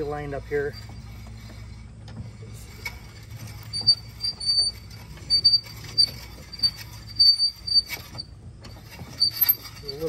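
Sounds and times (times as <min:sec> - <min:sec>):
jack squeaking: 0:00.0 - 0:10.0.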